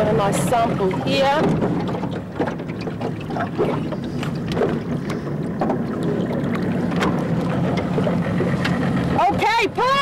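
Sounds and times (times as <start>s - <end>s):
boat engine running: 0.0s - 10.0s.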